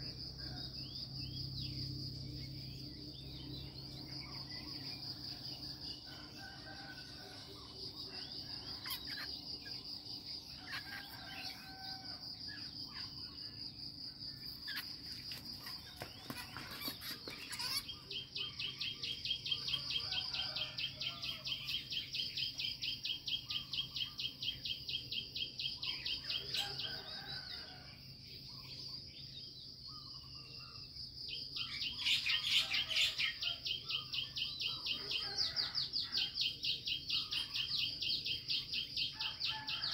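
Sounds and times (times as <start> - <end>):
insects trilling: 0.0 - 39.9
birds chirping: 14.4 - 22.1.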